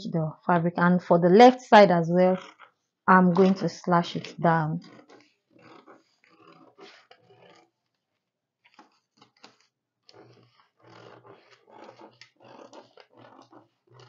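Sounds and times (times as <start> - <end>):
scissors cutting paper: 3.3 - 7.7, 8.7 - 14.0.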